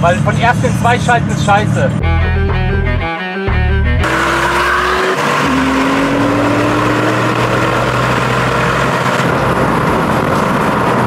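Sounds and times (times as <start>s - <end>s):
car engine accelerating: 0.0s - 11.0s
background music: 2.0s - 7.2s.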